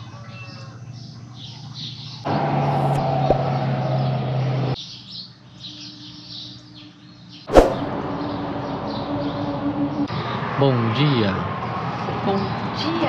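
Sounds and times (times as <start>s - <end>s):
sharp whoosh-like hit: 7.5s - 8.0s.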